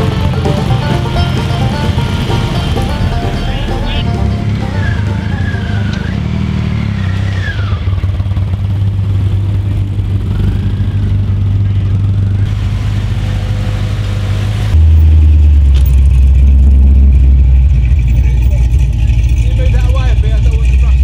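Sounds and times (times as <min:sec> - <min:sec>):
deep muscle car engine passing: 0:00.0 - 0:11.2
car engine running: 0:00.0 - 0:21.0.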